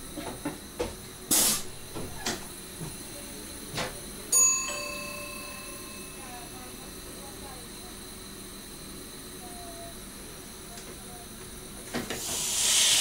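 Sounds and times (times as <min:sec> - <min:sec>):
short loud hiss: 0:01.3 - 0:01.7, 0:12.2 - 0:13.0
ringing chime: 0:04.3 - 0:07.0.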